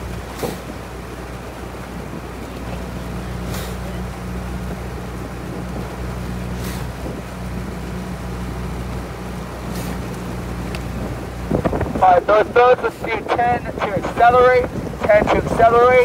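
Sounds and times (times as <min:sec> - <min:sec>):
outboard motor humming: 0:00.0 - 0:16.0
water wash: 0:00.0 - 0:16.0
wind on microphone: 0:00.0 - 0:16.0.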